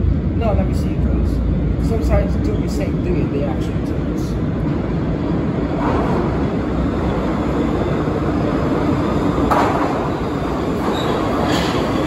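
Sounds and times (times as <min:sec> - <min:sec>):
subway train rumbling: 0:00.0 - 0:12.0
train wheels clattering: 0:09.1 - 0:12.0.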